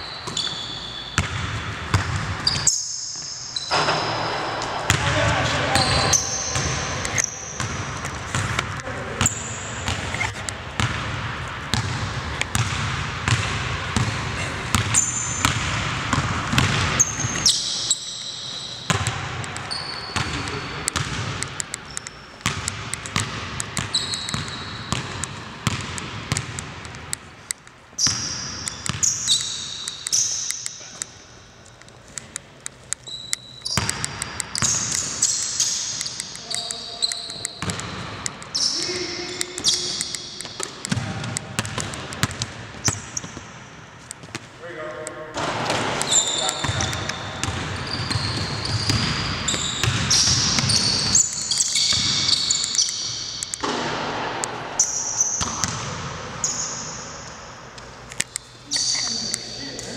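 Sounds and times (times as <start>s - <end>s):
sneaker squeaks on floor: 0.0s - 11.0s, 14.0s - 25.8s, 27.9s - 31.0s, 33.0s - 41.8s, 42.8s - 43.5s, 45.6s - 53.7s, 58.6s - 59.6s
basketball bouncing on court: 0.2s - 3.0s, 3.6s - 18.1s, 18.8s - 27.2s, 27.9s - 30.2s, 33.6s - 44.5s, 45.4s - 56.9s.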